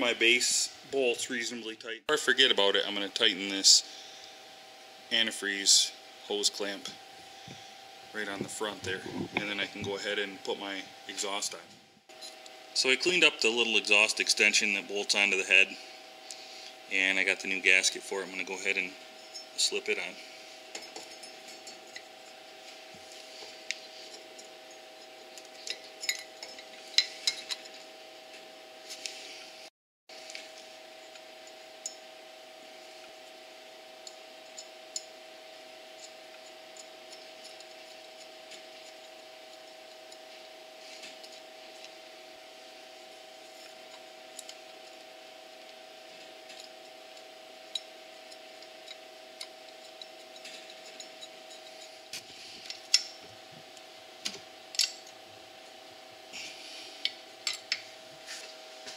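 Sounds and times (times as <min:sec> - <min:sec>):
steady faint hum: 0:00.0 - 0:58.9
light metal clinks and scrapes: 0:25.4 - 0:27.8, 0:46.4 - 0:53.1.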